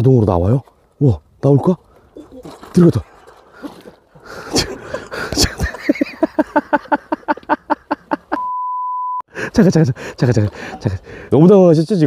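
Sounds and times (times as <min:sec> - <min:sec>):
steady high beep: 0:08.4 - 0:09.2.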